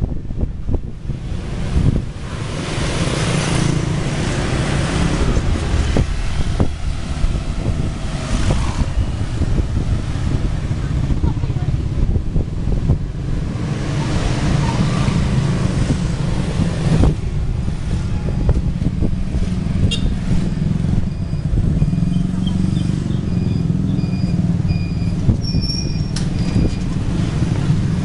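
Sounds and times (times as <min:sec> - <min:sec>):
scooters and cars passing: 0:00.0 - 0:28.0
steady low rumble: 0:03.7 - 0:19.9.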